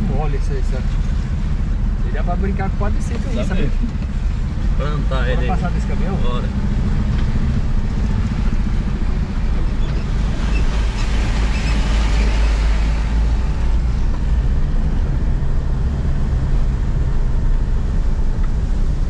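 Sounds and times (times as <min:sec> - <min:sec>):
vehicle engine and tyres rumbling: 0:00.0 - 0:19.0
rushing noise of passing truck: 0:06.1 - 0:19.0.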